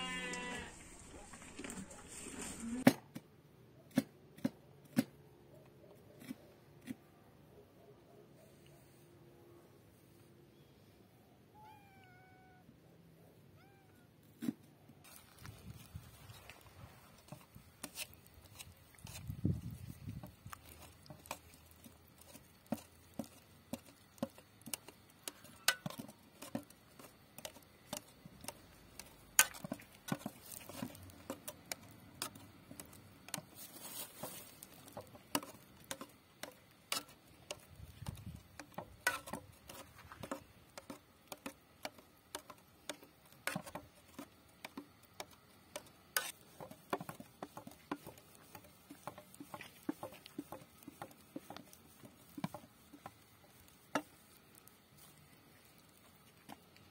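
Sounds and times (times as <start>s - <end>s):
wet mash being stirred: 0.0s - 2.8s, 14.4s - 56.9s.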